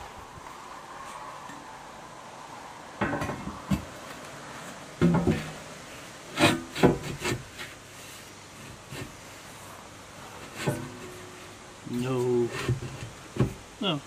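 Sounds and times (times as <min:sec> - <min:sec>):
steel plate scraping and knocking: 0:05.0 - 0:05.7, 0:06.3 - 0:07.8, 0:10.4 - 0:11.5, 0:12.4 - 0:13.6.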